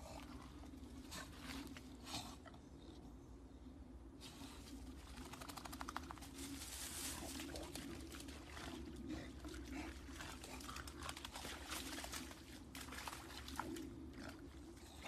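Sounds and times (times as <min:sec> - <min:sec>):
steady low hum: 0:00.0 - 0:15.0
dog running through dead leaves: 0:05.4 - 0:08.6.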